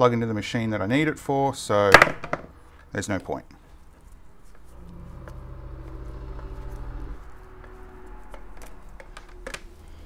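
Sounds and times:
steady low hum: 3.5s - 10.0s.

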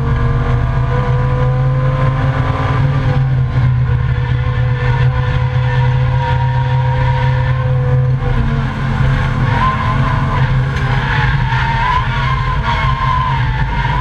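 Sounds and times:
race car engine drone: 0.0s - 14.0s
tyre squeal: 3.9s - 8.6s, 9.3s - 14.0s.

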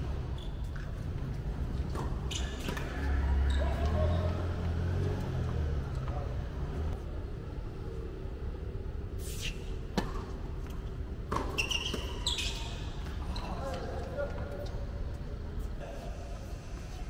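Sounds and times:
tennis balls hit by rackets: 9.8s - 12.2s.

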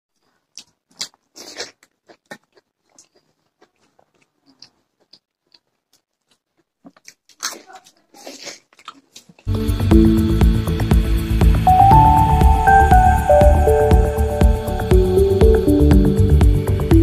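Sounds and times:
chewing and mouth smacking: 0.2s - 9.5s.

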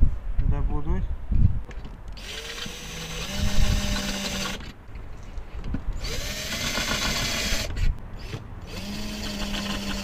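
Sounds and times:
electric drill whining: 2.2s - 4.6s, 6.0s - 10.0s.

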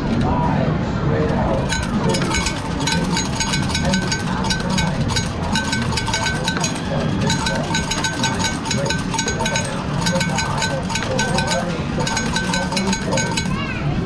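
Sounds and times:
coins clinking: 1.3s - 13.6s.

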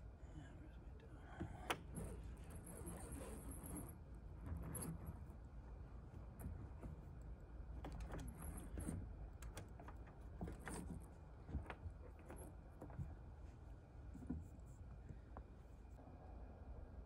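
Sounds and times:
small clicks and rustles of rigging: 6.1s - 15.5s.

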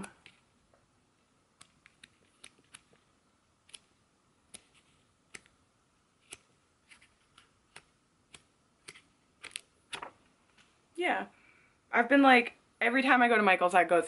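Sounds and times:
pages flicking: 1.6s - 3.0s, 6.2s - 10.7s.

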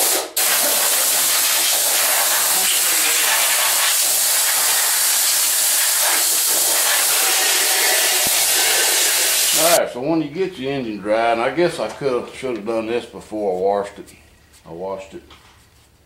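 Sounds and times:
hose spray nozzle hissing: 0.0s - 9.8s.

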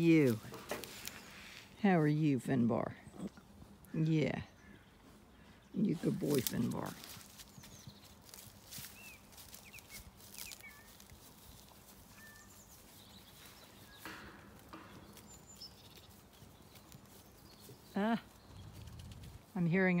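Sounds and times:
sheep cropping grass: 0.0s - 1.7s, 5.8s - 19.6s
faint bird chirps: 8.8s - 14.1s.

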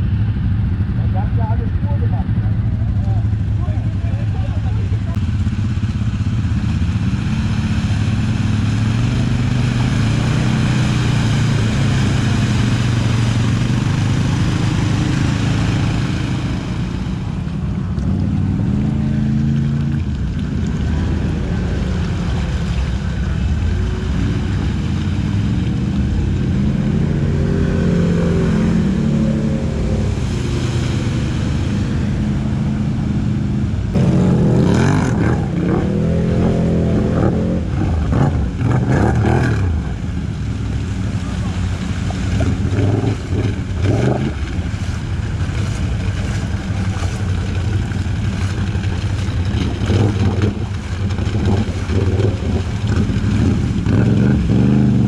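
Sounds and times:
off-road engines revving: 0.0s - 55.0s
louder engine: 25.5s - 40.0s.

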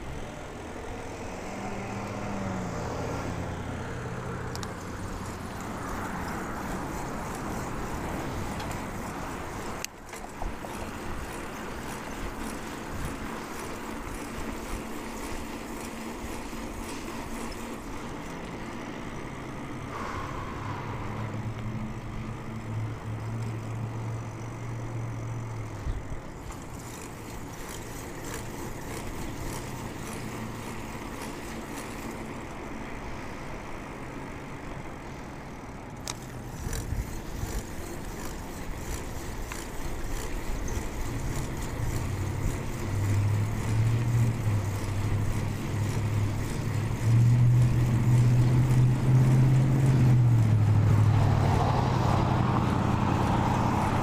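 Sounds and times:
vehicle engine hum: 0.0s - 54.0s
wind and tyre rush: 0.0s - 54.0s.

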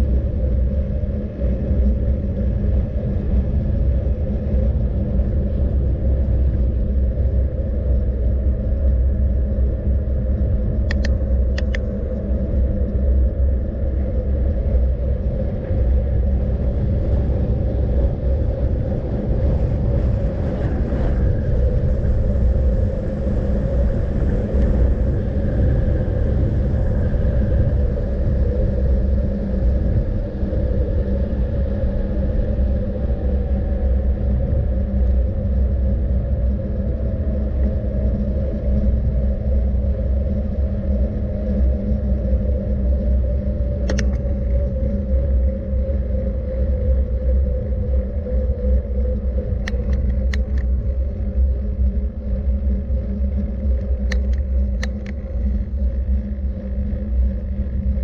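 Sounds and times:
constant hum: 0.0s - 58.0s
low rumble of moving vehicle: 0.0s - 58.0s
faint clicks: 10.8s - 12.0s, 43.8s - 44.6s, 49.6s - 50.8s, 53.4s - 55.9s.

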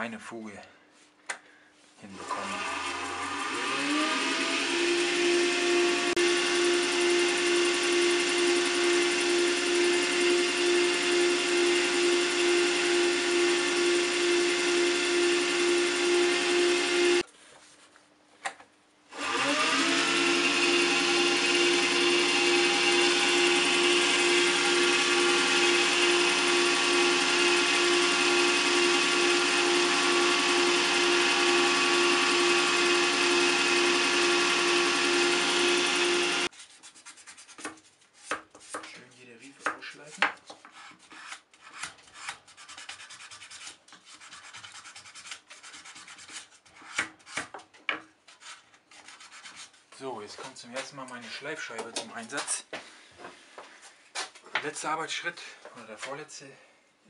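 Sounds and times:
electric wood lathe motor humming: 2.2s - 17.2s, 19.1s - 36.5s.

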